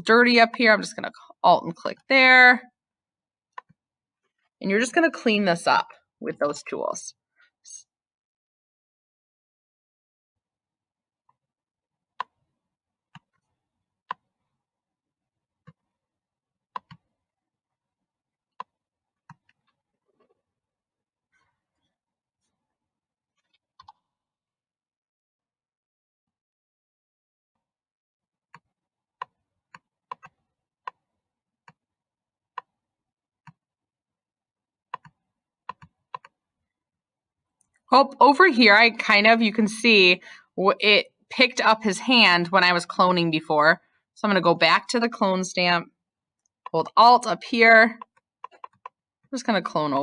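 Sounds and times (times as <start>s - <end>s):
computer mouse clicking: 35.0s - 36.4s, 48.0s - 49.0s.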